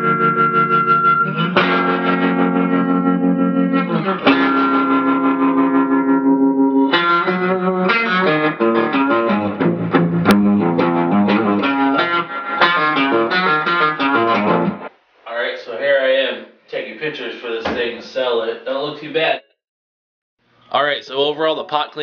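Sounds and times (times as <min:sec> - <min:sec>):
overdriven electric guitar: 0:00.0 - 0:14.9.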